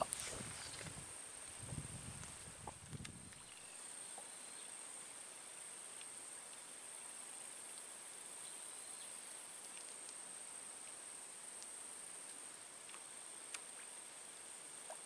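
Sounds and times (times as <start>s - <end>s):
high-pitched insect chorus: 0.0s - 15.0s
faint ticks: 5.9s - 6.8s, 7.5s - 7.9s, 9.0s - 15.0s.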